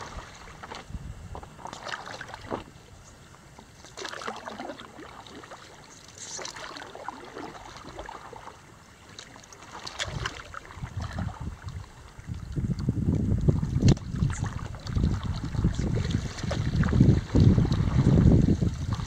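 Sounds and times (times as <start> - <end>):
wind rumble on microphone: 0.0 - 3.4, 10.0 - 19.0
paddle splashing water: 0.0 - 19.0.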